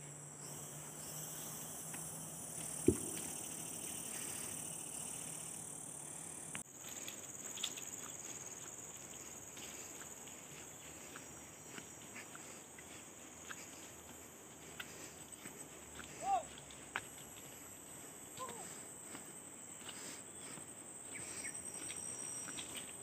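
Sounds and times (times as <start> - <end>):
forest insects droning: 0.0 - 23.0
sharp thump: 2.8 - 3.7
faint ticks: 6.4 - 10.1.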